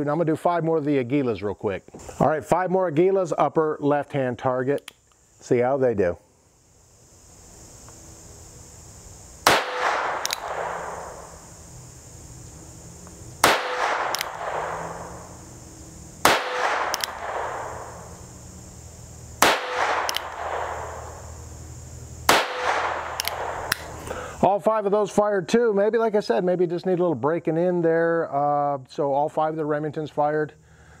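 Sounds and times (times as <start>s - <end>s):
revolver shots with echo: 13.4s - 15.2s, 16.3s - 17.9s.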